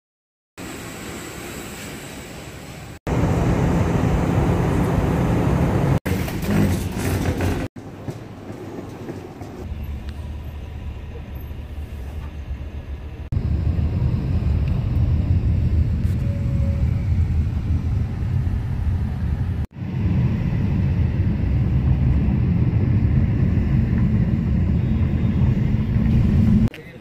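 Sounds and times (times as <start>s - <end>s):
city street noise: 0.6s - 27.0s
low rumble of moving vehicle: 2.7s - 26.9s
jet airliner cabin noise: 11.1s - 26.7s.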